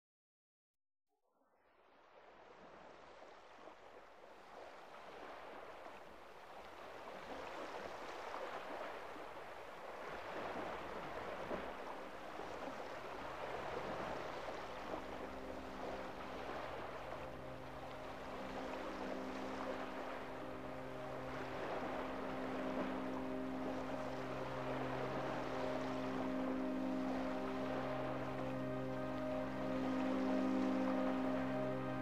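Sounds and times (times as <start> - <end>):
steady low chord: 11.9 - 32.0.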